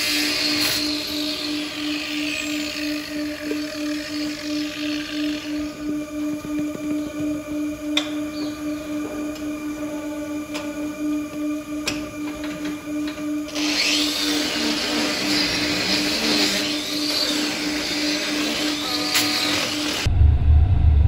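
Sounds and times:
loud grinding hiss: 0:00.0 - 0:05.7, 0:13.5 - 0:20.1
electric power tool humming: 0:00.0 - 0:20.1.

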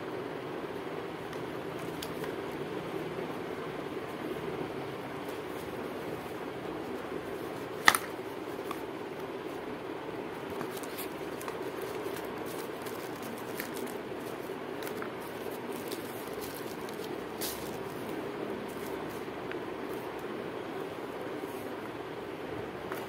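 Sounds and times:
steady background hum: 0:00.0 - 0:23.0
packaging rustling: 0:10.3 - 0:20.3.

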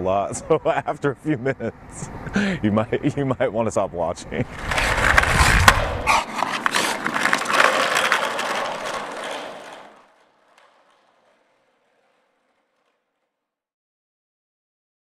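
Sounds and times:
skateboard wheels rolling on asphalt: 0:04.0 - 0:13.3.

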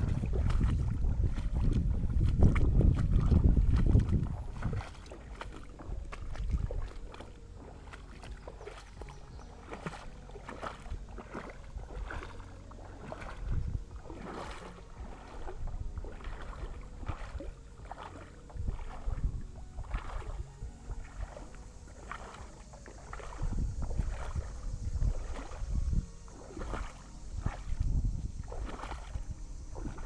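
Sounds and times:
water sloshing and splashing: 0:00.0 - 0:30.0.

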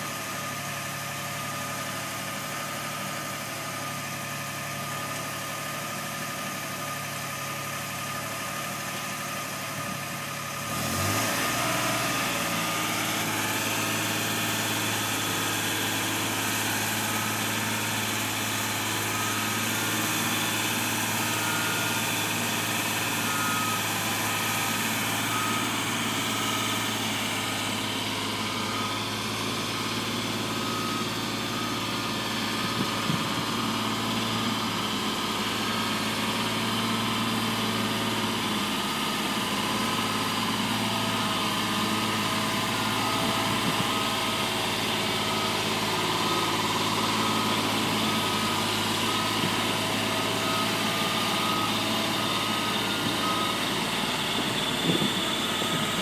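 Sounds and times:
boom lift engine running: 0:00.0 - 0:56.0.

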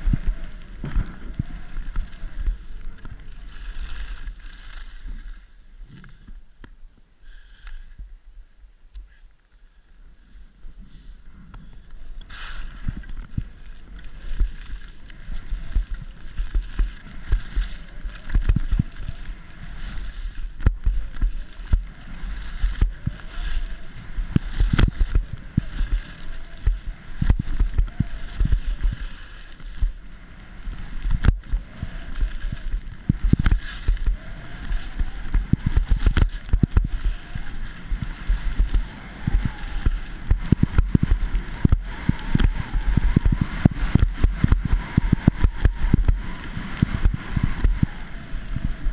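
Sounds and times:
skis scraping on packed snow: 0:00.0 - 0:07.8, 0:09.6 - 0:48.9
wind buffeting microphone: 0:12.8 - 0:48.9.

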